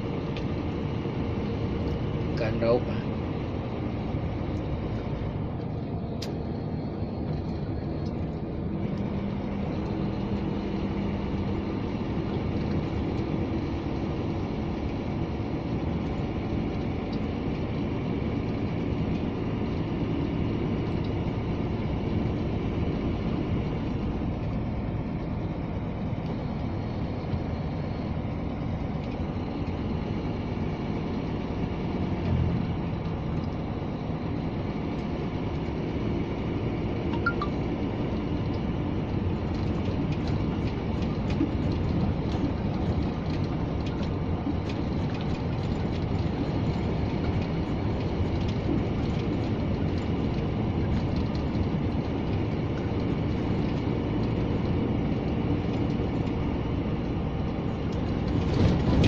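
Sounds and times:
truck diesel engine running: 0:00.0 - 0:59.0
tyre and road noise: 0:00.0 - 0:59.0.

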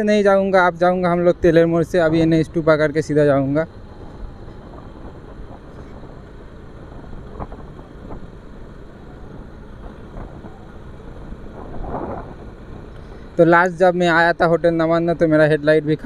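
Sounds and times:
motorcycle engine running: 0:00.0 - 0:15.9
wind noise on microphone: 0:06.8 - 0:08.4, 0:09.0 - 0:13.4.

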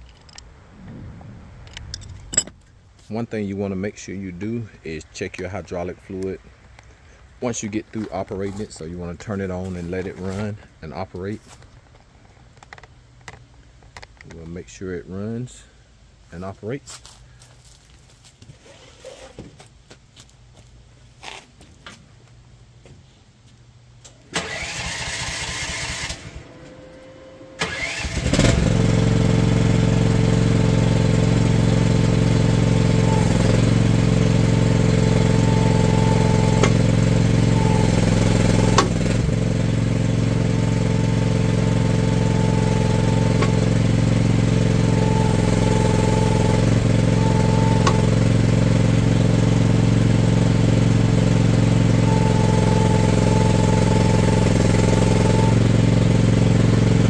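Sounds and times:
excavator engine running: 0:00.0 - 0:13.4, 0:24.3 - 0:57.0
engine starter cranking: 0:24.1 - 0:26.7, 0:27.6 - 0:56.5.

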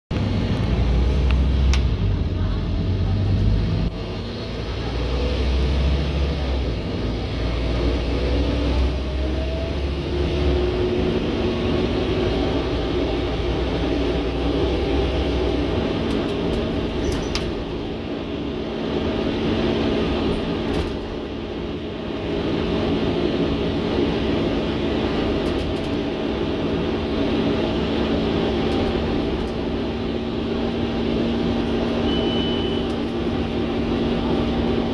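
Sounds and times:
bus diesel engine droning: 0:00.1 - 0:34.9
road noise: 0:00.1 - 0:34.9.

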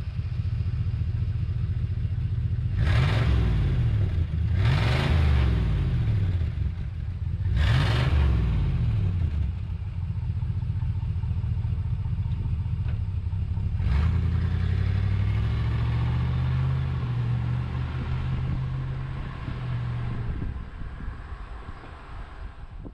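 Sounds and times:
car driving off: 0:02.6 - 0:22.9
car engine revving: 0:02.7 - 0:09.5, 0:13.6 - 0:22.8.

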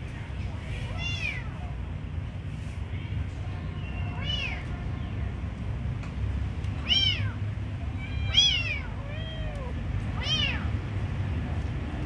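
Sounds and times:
steady low rumble: 0:00.0 - 0:12.0
kittens meowing: 0:00.9 - 0:01.6, 0:03.8 - 0:04.7, 0:06.8 - 0:10.7.

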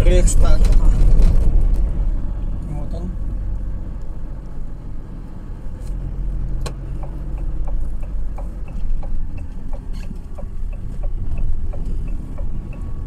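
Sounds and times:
car engine and road rumble: 0:00.0 - 0:13.0
turn-signal indicator ticking: 0:06.6 - 0:13.0.

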